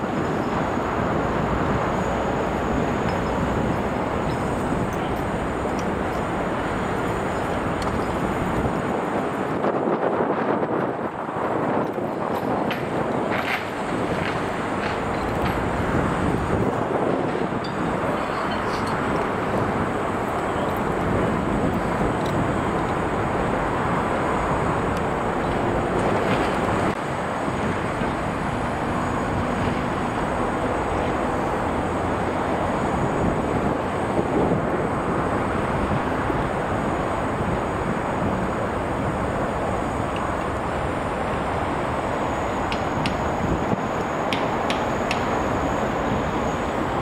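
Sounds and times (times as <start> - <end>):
road traffic rumble: 0.0 - 47.0.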